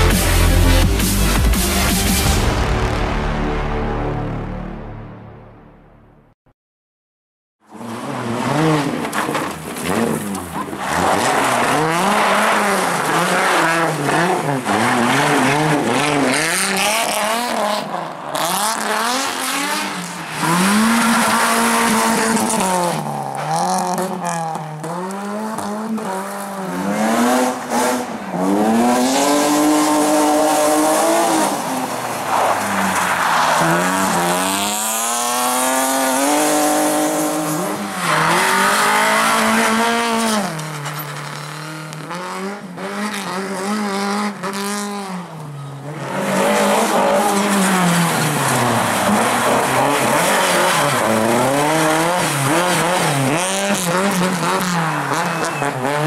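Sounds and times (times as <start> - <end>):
race car engines revving: 7.7 - 56.0
tyres skidding on gravel: 7.8 - 42.2, 46.0 - 56.0.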